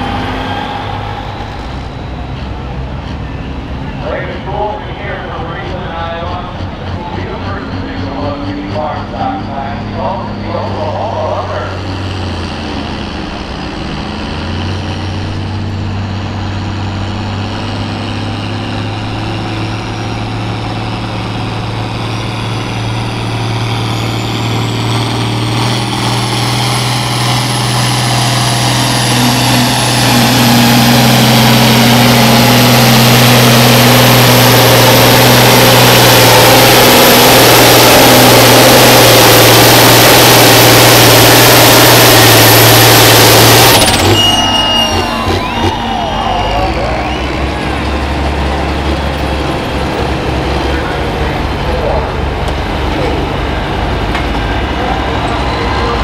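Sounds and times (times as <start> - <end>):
high whine rising in pitch: 0.0 - 4.8, 18.8 - 52.1
tractor diesel engine under load: 0.0 - 56.0.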